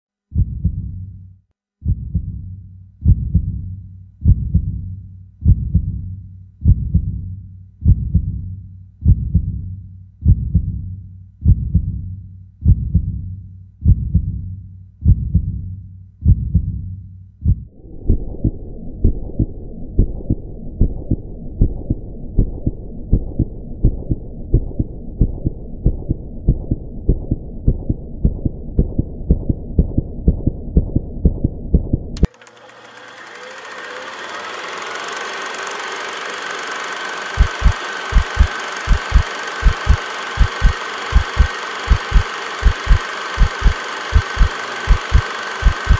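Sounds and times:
deep low thumps: 0.3 - 1.1, 1.8 - 32.2
steady hum: 17.5 - 30.0, 32.2 - 45.9
fast ticks: 32.2 - 45.9.

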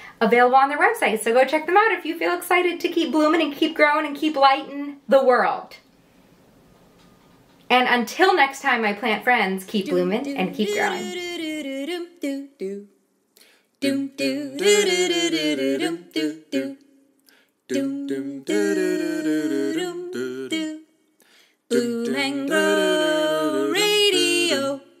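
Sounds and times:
person humming and singing: 10.3 - 12.9, 13.8 - 16.8, 17.7 - 20.8, 21.7 - 25.0.

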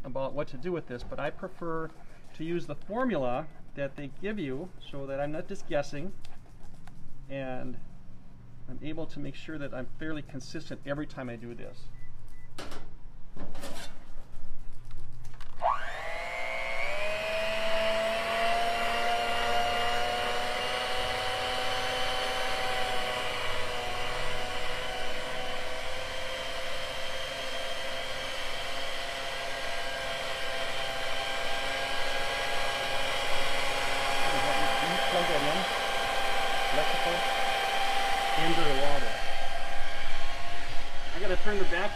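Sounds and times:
electric hand mixer whining: 15.5 - 41.9.

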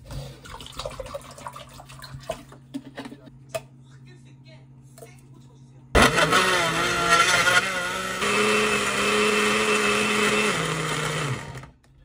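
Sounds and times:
blender motor whirring: 6.0 - 11.8.

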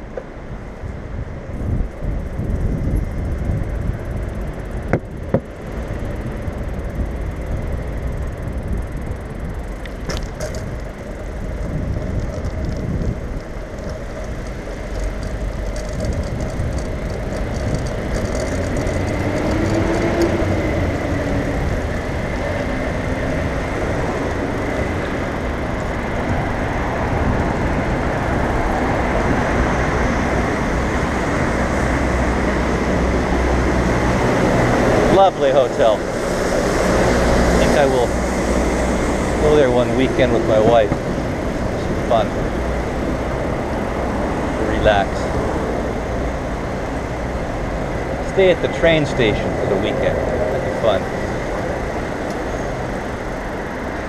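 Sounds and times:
road traffic: 0.0 - 54.0
wind on microphone: 0.0 - 54.0
bicycle knocking over bumps: 4.8 - 5.6, 10.0 - 20.3.

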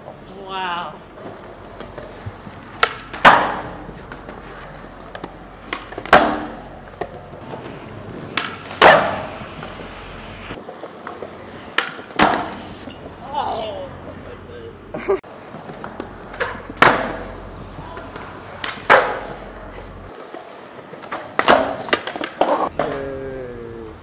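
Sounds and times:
wheels rolling on concrete: 0.0 - 23.2
skateboard landing clap: 2.7 - 4.4, 5.0 - 7.2, 8.3 - 9.9, 11.0 - 12.7, 15.6 - 19.5, 21.0 - 23.0
skateboard tail pop: 2.8 - 4.4, 5.1 - 7.2, 8.3 - 9.4, 11.7 - 12.8, 15.7 - 17.3, 18.6 - 19.3, 21.1 - 23.0.

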